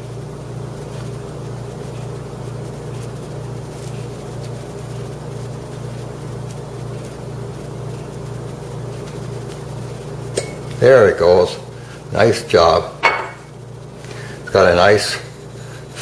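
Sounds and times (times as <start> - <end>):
low pulsing hum: 0.0 - 14.6.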